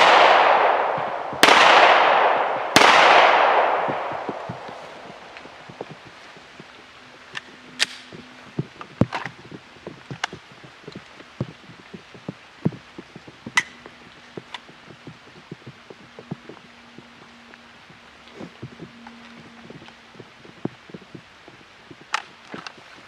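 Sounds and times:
light tapping of rain: 0:00.0 - 0:23.0
sharp clicks: 0:02.8 - 0:17.6.

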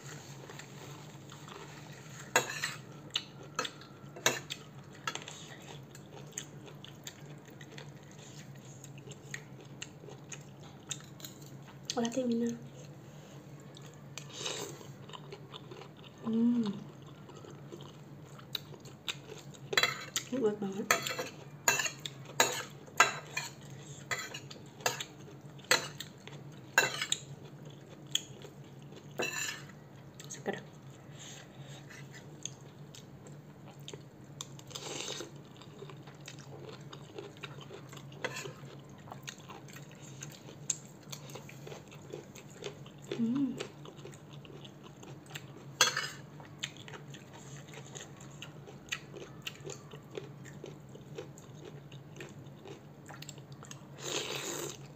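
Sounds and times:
chewing: 0:00.2 - 0:20.3, 0:20.9 - 0:54.9
cutlery clinking on ceramic bowl: 0:20.9 - 0:25.1, 0:29.2 - 0:29.7
slurping noodles: 0:54.0 - 0:54.9.

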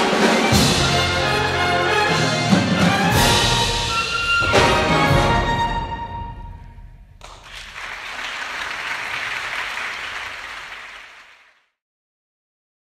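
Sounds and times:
audience applauding: 0:07.2 - 0:11.7.

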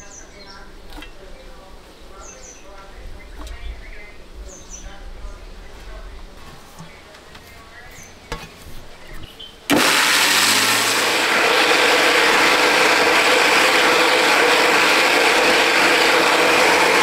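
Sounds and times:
mixer grinder motor running: 0:09.7 - 0:17.0.

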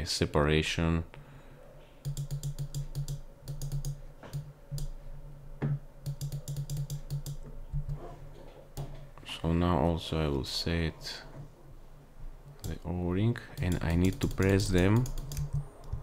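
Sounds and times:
keyboard keys clicking: 0:02.0 - 0:04.9, 0:06.0 - 0:08.0, 0:13.6 - 0:16.0.

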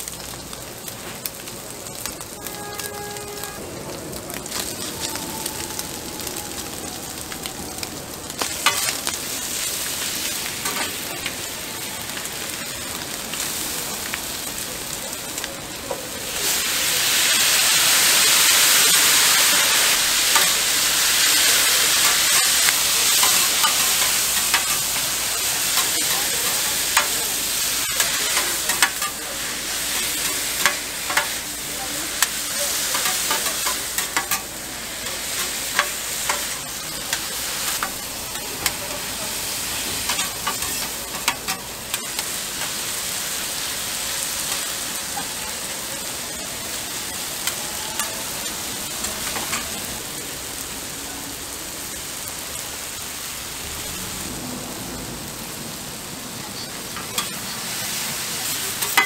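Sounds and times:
food sizzling on a griddle: 0:00.0 - 0:59.0
loud steam hiss: 0:04.4 - 0:51.4, 0:52.0 - 0:59.0
metal spatulas clicking on griddle: 0:22.0 - 0:25.0, 0:28.0 - 0:29.2, 0:58.8 - 0:59.0.

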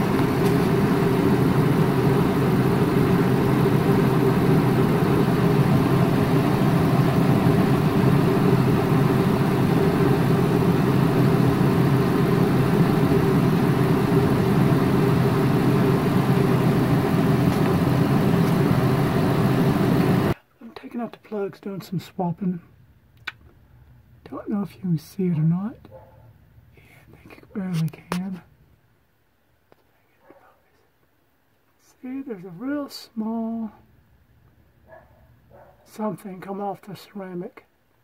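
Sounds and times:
engine idling: 0:00.0 - 0:20.4.

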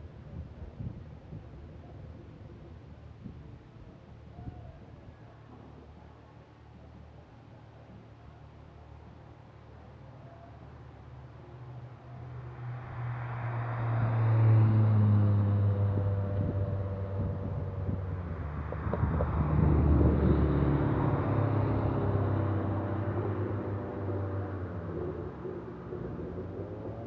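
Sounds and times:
cars driving past: 0:12.2 - 0:27.0.

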